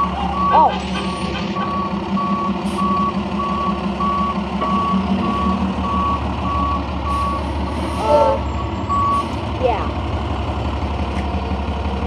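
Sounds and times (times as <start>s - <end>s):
reversing alarm beeping: 0.0s - 9.3s
diesel engine running: 0.0s - 12.0s.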